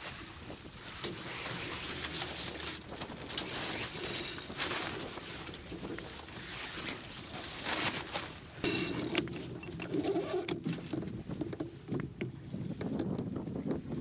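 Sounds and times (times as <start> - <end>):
sea noise: 0.0 - 12.9
wind: 0.0 - 14.0
winch creaking and squealing: 8.6 - 10.6.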